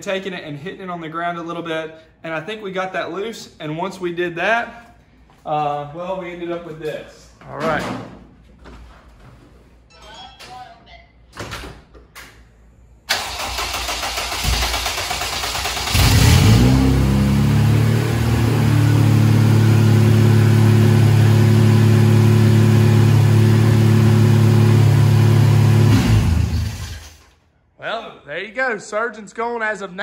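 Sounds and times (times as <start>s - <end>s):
car engine starting and idling: 13.1s - 27.3s.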